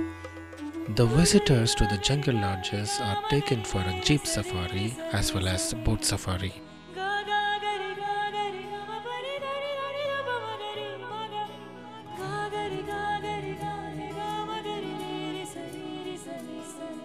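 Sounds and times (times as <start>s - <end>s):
wavering melody over low notes: 0.0s - 6.6s.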